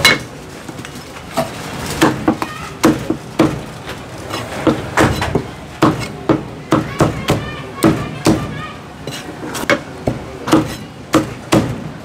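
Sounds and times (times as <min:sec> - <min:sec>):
cleaver chopping on wooden block: 0:09.7 - 0:11.8.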